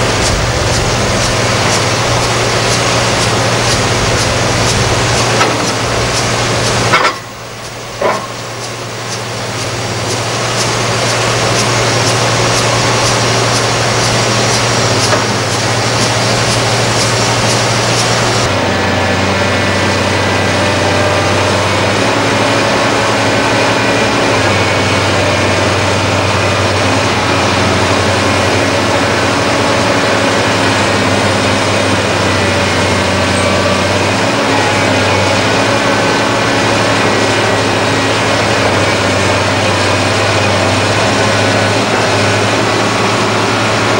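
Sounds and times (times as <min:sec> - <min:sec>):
light regular ticking: 0:00.0 - 0:18.5
excavator diesel engine droning: 0:00.0 - 0:43.9.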